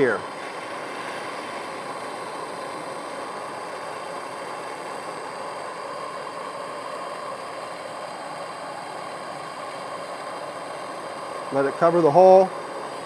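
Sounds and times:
gas torch flame hissing: 0:00.0 - 0:13.0.

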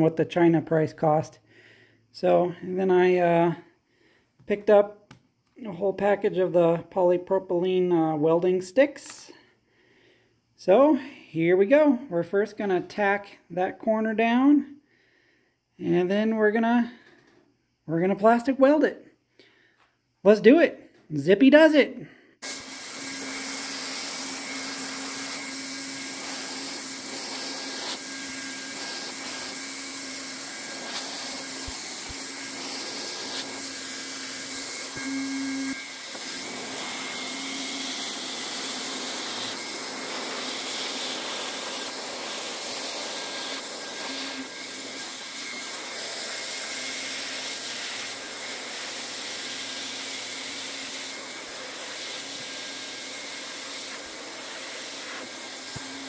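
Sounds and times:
hot air gun blowing: 0:22.4 - 0:56.0.

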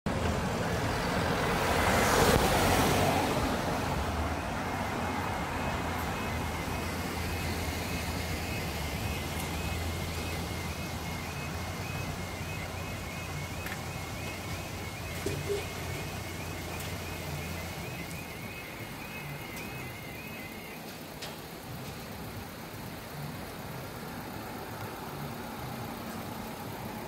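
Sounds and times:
low traffic hum: 0:00.1 - 0:27.0
vehicle passing over crossing: 0:00.1 - 0:27.0
two-tone warning alarm: 0:04.4 - 0:21.2.

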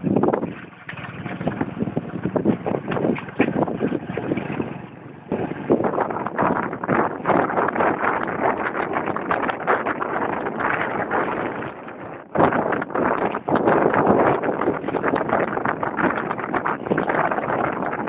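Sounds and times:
wind buffeting microphone: 0:00.0 - 0:18.0.

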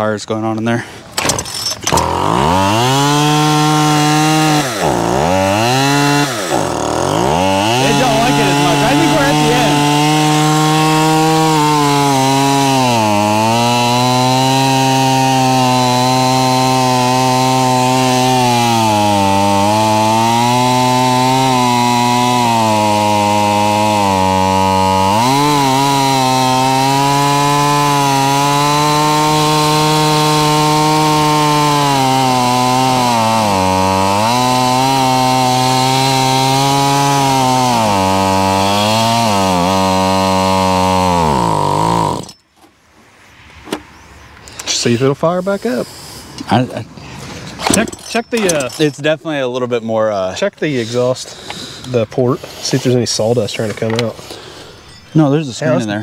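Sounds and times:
chainsaw engine running hard: 0:01.9 - 0:42.4.

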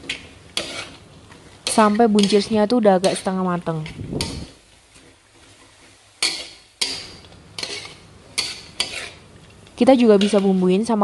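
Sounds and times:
metal spatula scraping a wok: 0:00.0 - 0:09.3, 0:09.9 - 0:11.0.

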